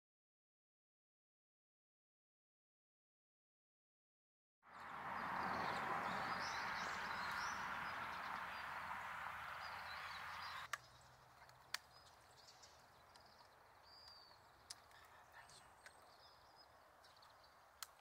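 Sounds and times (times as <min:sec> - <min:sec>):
small birds chirping: 0:04.7 - 0:18.0.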